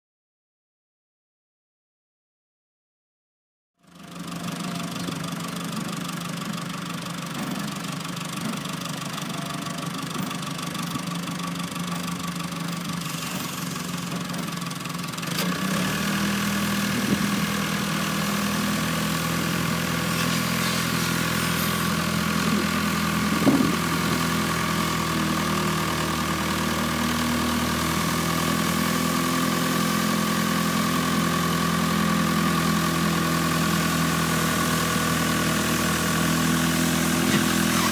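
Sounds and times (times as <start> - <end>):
road sweeper engine running: 3.8 - 37.9
rotary broom sweeping dirt: 13.0 - 14.1, 16.9 - 22.7.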